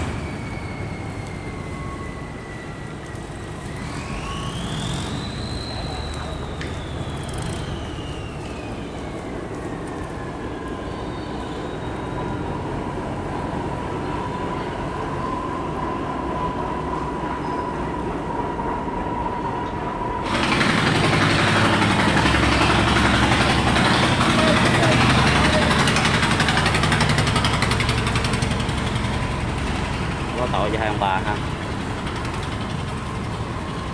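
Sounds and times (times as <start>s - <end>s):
boat engine running: 20.3s - 33.9s.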